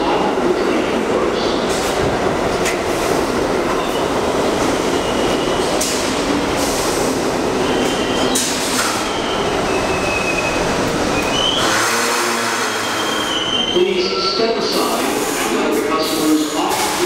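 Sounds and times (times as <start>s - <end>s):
subway train rumbling on rails: 0.0s - 17.0s
high wheel squeals: 7.6s - 14.4s.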